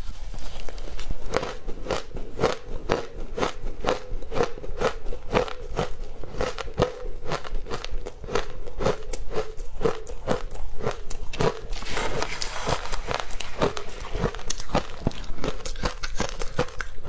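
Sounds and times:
crunching ice: 0.6s - 17.0s
spoon scraping ice: 11.4s - 16.8s.

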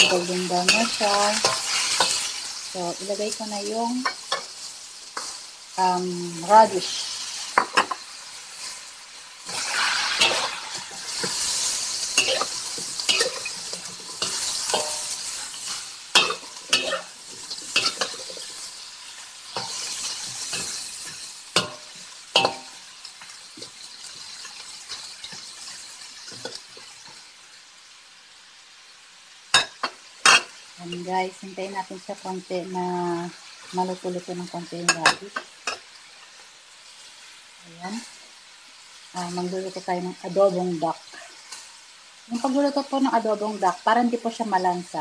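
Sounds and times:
metal spatula scraping a wok: 0.0s - 5.6s, 6.6s - 22.9s
food sizzling in a wok: 0.0s - 45.0s.

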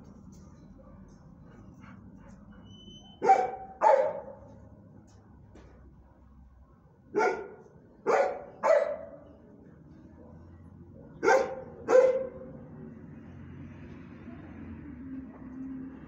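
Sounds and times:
dog barking: 3.2s - 4.5s, 7.1s - 9.2s, 11.1s - 12.5s.

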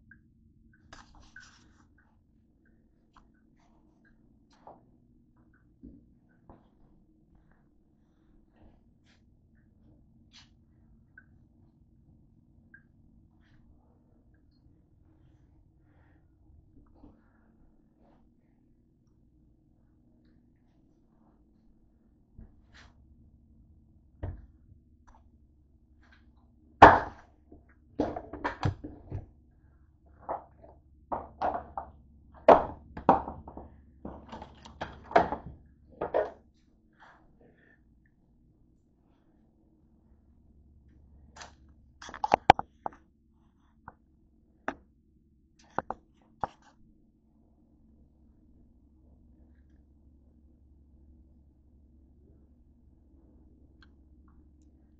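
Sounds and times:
faint steady hum: 0.0s - 54.9s
knocks and thuds of handling: 30.2s - 36.4s.

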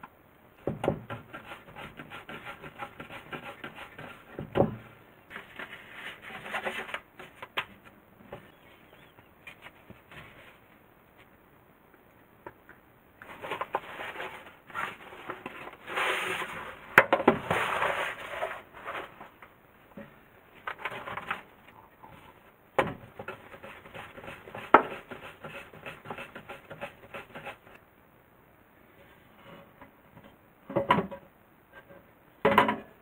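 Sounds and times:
parchment paper rustling: 5.3s - 7.7s, 20.6s - 21.6s.

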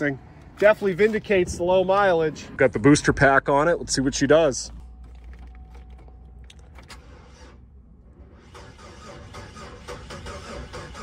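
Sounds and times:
starter cranking car engine: 5.4s - 11.0s.

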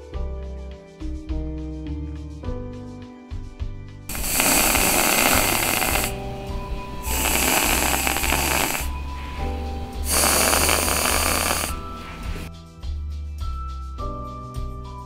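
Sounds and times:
whipped cream can spraying: 4.1s - 6.2s, 6.9s - 12.5s.

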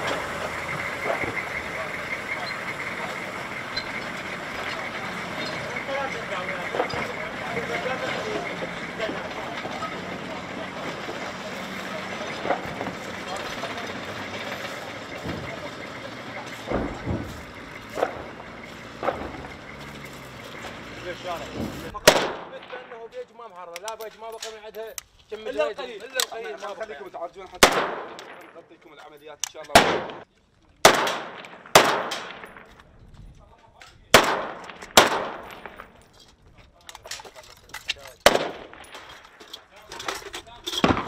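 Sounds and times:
sharp bangs: 0.0s - 23.3s, 27.5s - 32.9s, 34.0s - 36.1s, 38.1s - 39.7s, 40.7s - 41.0s
vehicle engines running: 0.0s - 41.0s
rifle shots with echo: 22.0s - 23.1s, 27.6s - 28.7s, 29.7s - 32.8s, 34.1s - 36.0s, 38.2s - 39.1s, 40.8s - 41.0s.

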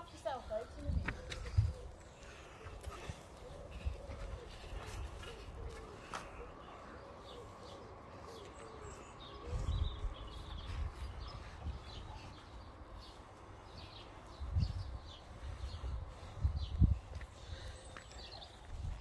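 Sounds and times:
birds chirping: 0.0s - 19.0s
pigeon cooing: 1.1s - 10.3s.

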